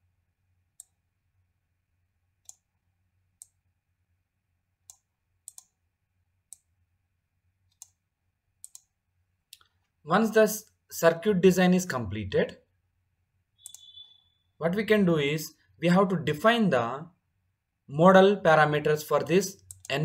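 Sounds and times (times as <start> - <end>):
computer mouse clicking: 0.8 - 1.0, 2.4 - 2.7, 3.4 - 3.6, 4.8 - 5.8, 6.5 - 6.7, 7.7 - 8.0, 8.6 - 9.0, 13.6 - 14.1, 19.6 - 20.0.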